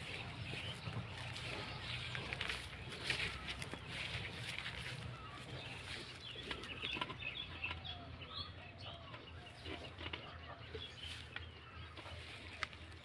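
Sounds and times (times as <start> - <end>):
chickens clucking: 0.0 - 7.8.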